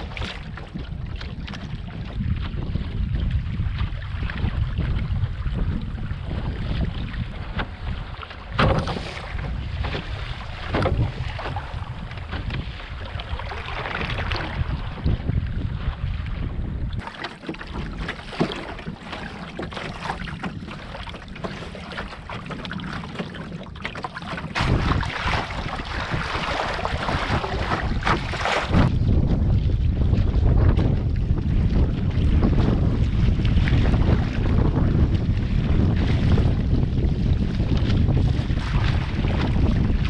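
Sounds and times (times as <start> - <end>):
water sloshing along canoe hull: 0.0 - 40.0
wind buffeting microphone: 0.0 - 40.0
sharp splashes: 24.5 - 28.9.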